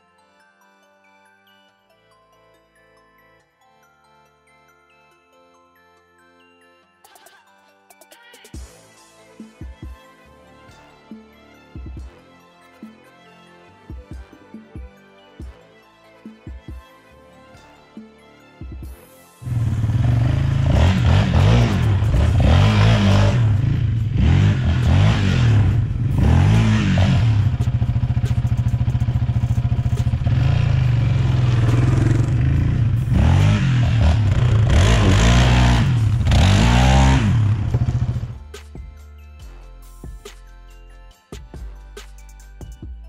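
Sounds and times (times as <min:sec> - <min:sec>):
atv engine revving: 0:19.4 - 0:38.4.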